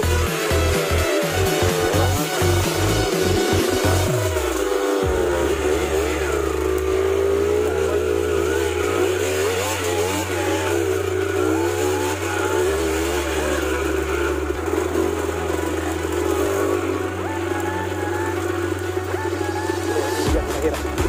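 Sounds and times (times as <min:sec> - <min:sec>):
background music with bass: 0:00.0 - 0:21.0
dirt bike engines revving: 0:00.0 - 0:21.0.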